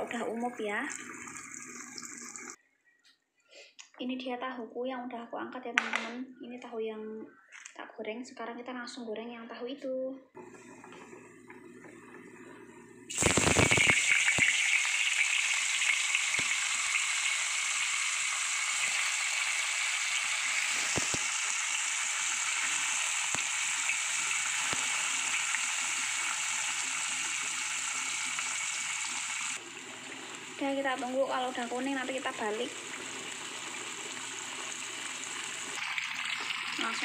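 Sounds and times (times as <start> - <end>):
tofu sizzling in hot oil: 13.1 - 37.0.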